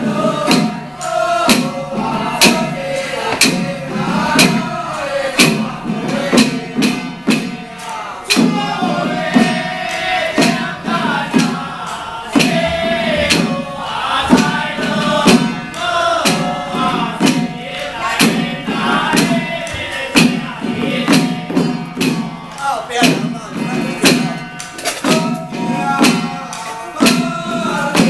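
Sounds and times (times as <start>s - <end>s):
sharp percussion strikes: 0.0s - 28.0s
man chanting: 22.5s - 28.0s.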